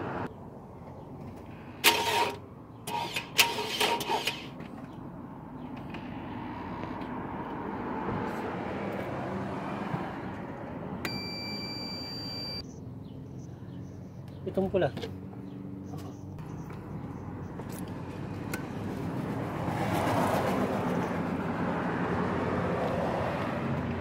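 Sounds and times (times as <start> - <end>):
car engine cranking and idling: 0.7 - 7.6
high electronic beep: 11.1 - 12.8.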